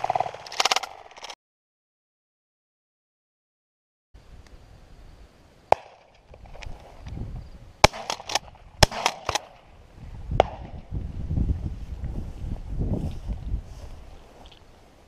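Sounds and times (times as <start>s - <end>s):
sharp shotgun-like cracks: 5.7s - 6.3s, 7.8s - 9.7s, 10.4s - 10.8s.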